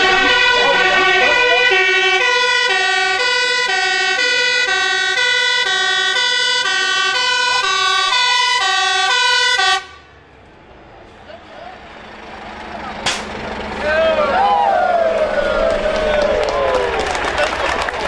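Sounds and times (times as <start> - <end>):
two-tone siren: 0.0 - 10.1
truck engine: 0.0 - 18.0.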